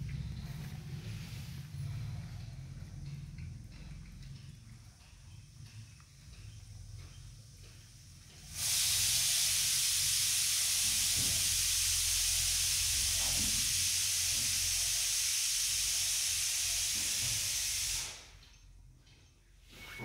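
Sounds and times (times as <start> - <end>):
loud steady hiss: 4.7 - 18.4.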